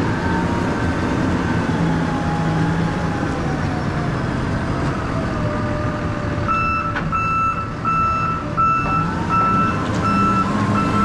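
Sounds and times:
forklift engine running: 0:00.0 - 0:11.0
forklift backup alarm beeping: 0:06.5 - 0:11.0.

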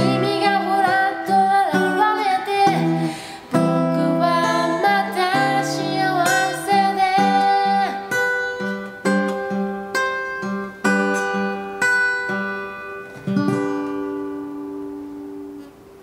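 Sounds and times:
person singing: 0:00.0 - 0:08.3
acoustic guitar strummed: 0:00.0 - 0:16.0.

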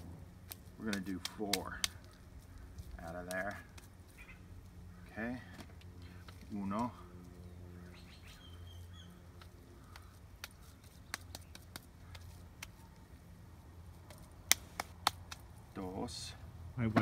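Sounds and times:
hands patting burger patty: 0:00.4 - 0:02.2, 0:09.4 - 0:12.8, 0:14.1 - 0:15.5
bird chirping: 0:01.9 - 0:05.2, 0:07.0 - 0:13.2.

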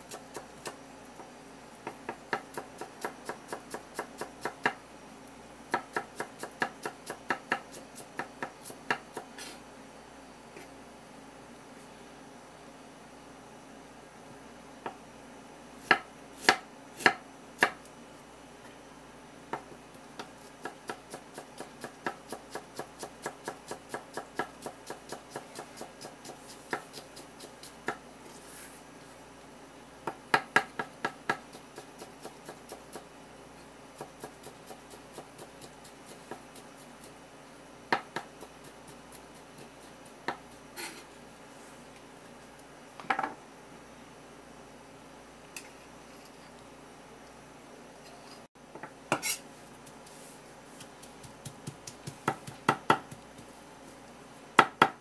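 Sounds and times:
knife chopping on wooden board: 0:50.8 - 0:53.5, 0:54.6 - 0:55.0.

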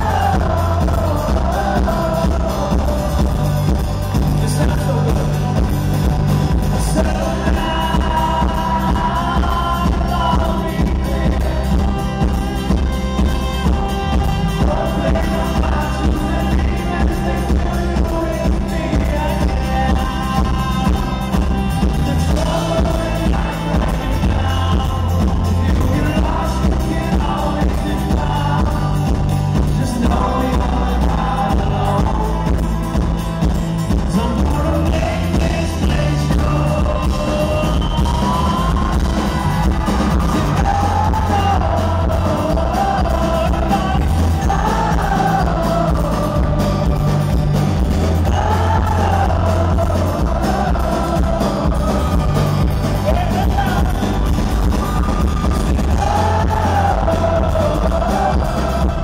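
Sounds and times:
acoustic guitar: 0:00.0 - 0:59.0
man singing: 0:00.0 - 0:59.0
strong bass: 0:00.0 - 0:59.0.

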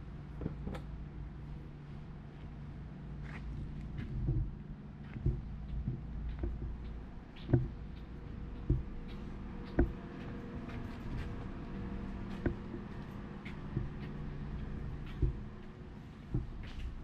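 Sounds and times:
steady low hum: 0:00.0 - 0:17.0
footsteps thudding: 0:03.9 - 0:10.0.

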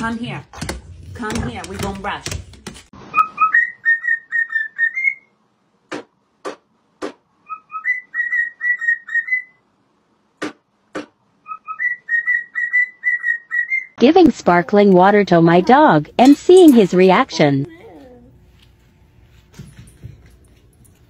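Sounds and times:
pet bird whistling a tune: 0:03.1 - 0:05.3, 0:07.4 - 0:09.6, 0:11.4 - 0:14.0.

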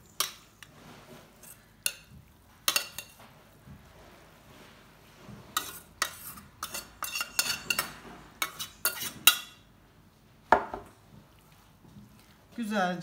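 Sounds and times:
metal spoon scraping a pot: 0:00.1 - 0:02.1, 0:02.7 - 0:03.2, 0:05.5 - 0:09.6.

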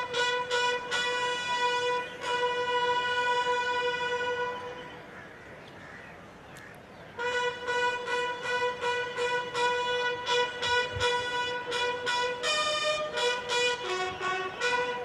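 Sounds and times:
bugle blasts: 0:07.2 - 0:15.0.

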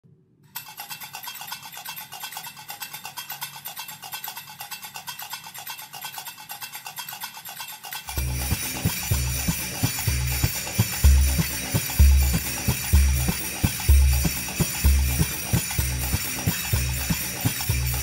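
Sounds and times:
scratchy shaker-like percussion: 0:00.6 - 0:18.0
dance music: 0:08.2 - 0:18.0
heavy bass drum beat: 0:08.2 - 0:18.0.

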